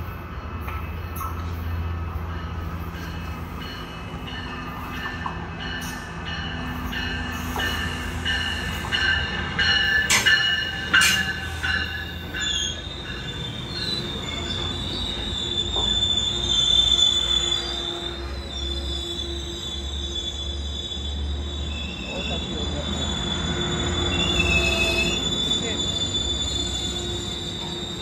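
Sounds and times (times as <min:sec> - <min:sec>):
train low rumble: 0:00.0 - 0:28.0
wheel and brake squeals: 0:09.6 - 0:28.0.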